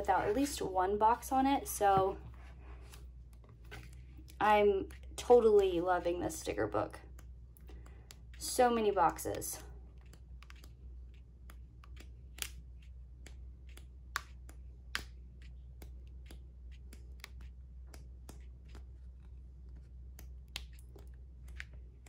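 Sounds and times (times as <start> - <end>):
sticker book pages flipping: 0.1 - 0.6, 2.8 - 5.8, 9.1 - 22.0.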